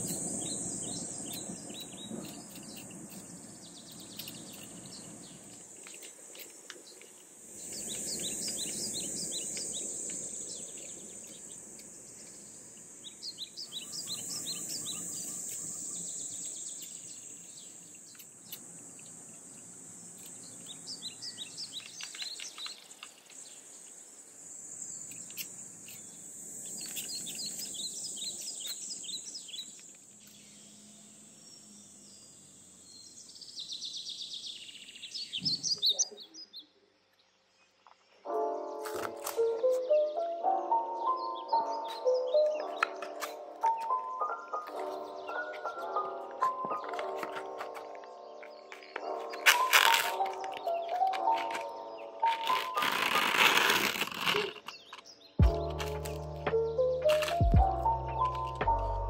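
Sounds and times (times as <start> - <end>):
high insect drone: 0.0 - 35.8, 37.9 - 59.0
birds chirping: 0.0 - 59.0.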